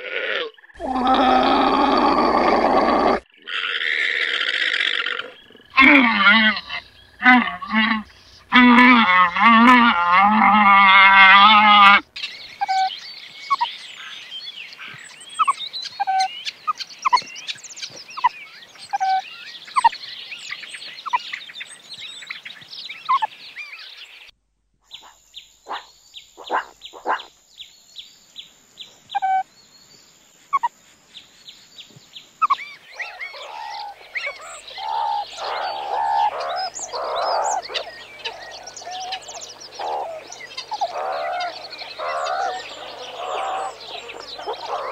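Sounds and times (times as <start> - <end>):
llama calling: 0.0 - 12.0, 32.4 - 44.9
meerkats chirping and chattering: 5.2 - 12.0, 12.6 - 12.9, 13.5 - 13.7, 15.4 - 17.3, 17.9 - 20.0, 23.1 - 23.3, 24.9 - 27.3, 32.4 - 44.9.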